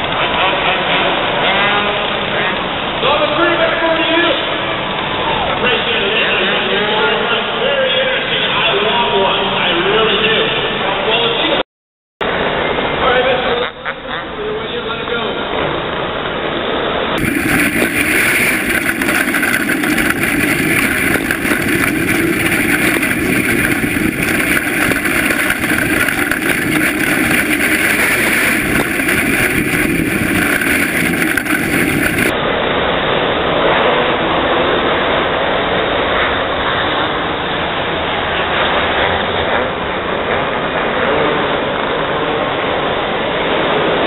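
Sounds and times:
kart engines racing: 17.2 - 32.4
wind rushing: 17.2 - 32.4.

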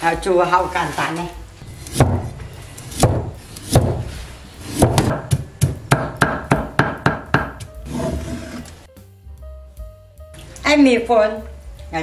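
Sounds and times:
cleaver chopping on wooden block: 2.9 - 4.0, 4.7 - 7.7.

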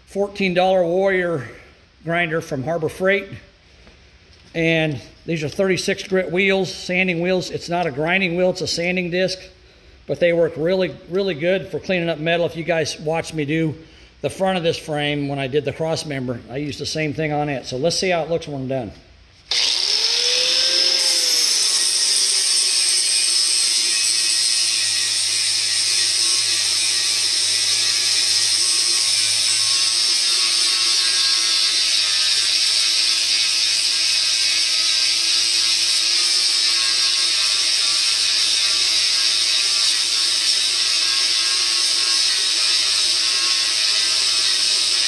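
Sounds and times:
angle grinder grinding steel: 19.5 - 45.0.

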